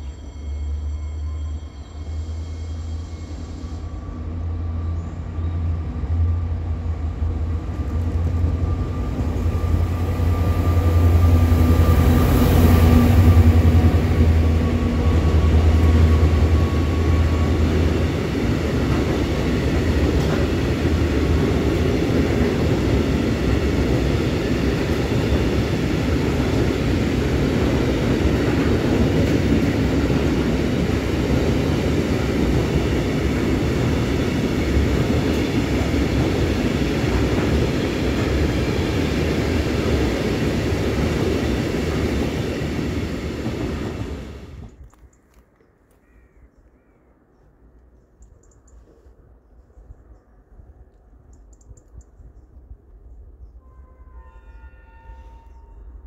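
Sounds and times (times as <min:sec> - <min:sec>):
locomotive hum: 0:00.0 - 0:44.8
train wheels rumbling on rails: 0:00.0 - 0:44.9.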